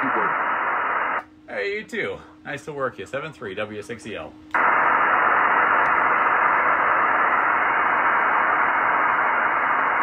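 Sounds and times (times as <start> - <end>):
radio receiver hiss: 0.0 - 1.7, 4.5 - 10.0.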